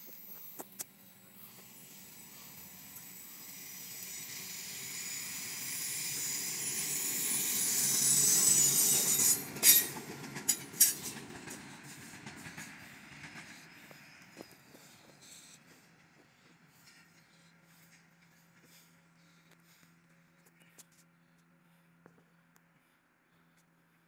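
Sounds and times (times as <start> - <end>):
diesel locomotive rumble: 0.0 - 20.4
wheel squeal: 4.2 - 11.1.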